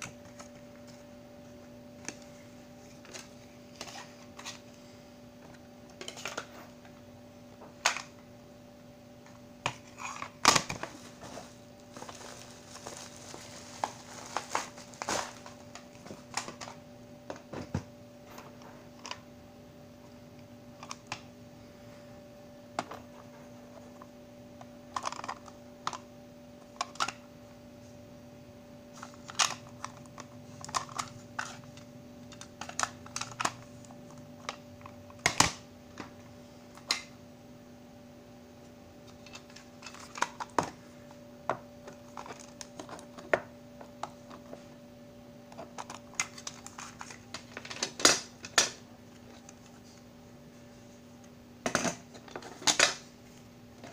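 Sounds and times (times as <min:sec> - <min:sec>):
faint steady hum: 0:00.0 - 0:53.9
plastic cassette cases clicking: 0:32.3 - 0:33.6.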